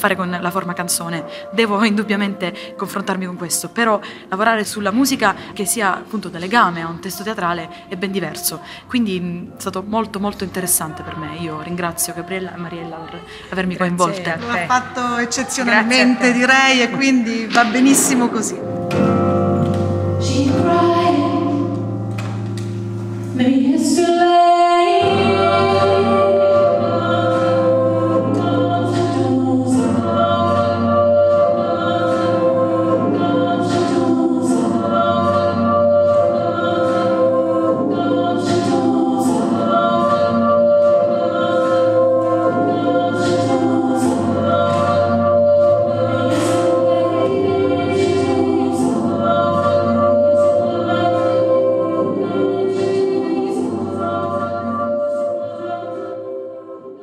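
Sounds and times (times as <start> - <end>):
woman singing: 0.0 - 18.6, 20.2 - 21.7, 23.4 - 32.3
electric piano: 16.9 - 54.4.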